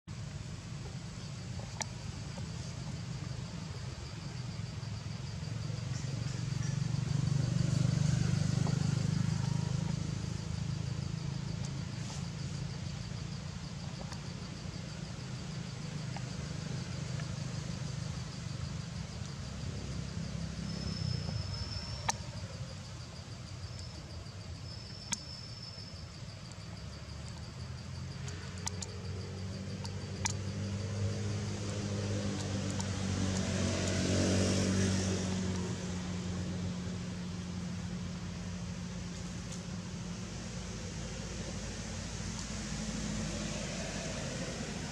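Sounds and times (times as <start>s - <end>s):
high insect trill: 0.1s - 44.9s
low steady rumble: 0.1s - 44.9s
sharp clicks: 28.2s - 29.0s.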